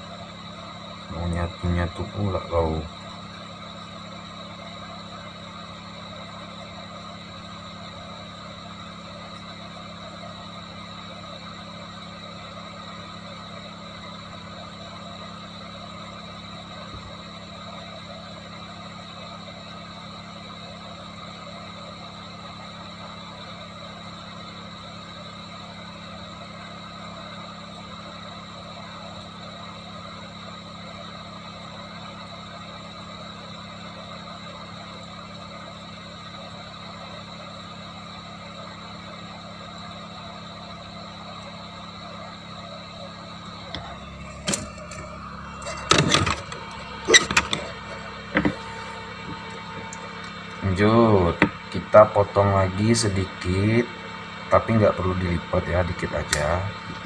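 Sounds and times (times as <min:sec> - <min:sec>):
steady hum: 0:00.0 - 0:57.0
hot air blower rushing: 0:43.8 - 0:52.3.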